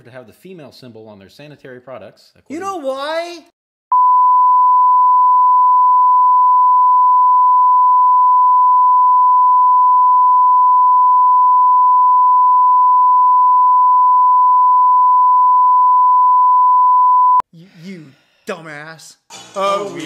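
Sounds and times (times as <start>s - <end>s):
censor bleep tone: 3.9s - 17.4s.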